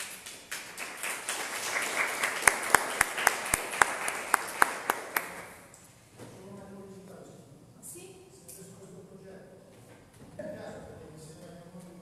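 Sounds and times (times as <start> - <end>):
audience applauding: 0.0 - 5.6
person clapping sharply: 0.0 - 5.7.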